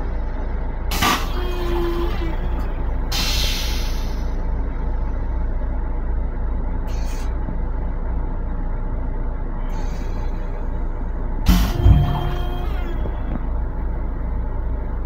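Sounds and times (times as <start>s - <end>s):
railcar low rumble: 0.0s - 15.0s
clunk with short rattle: 11.5s - 13.4s.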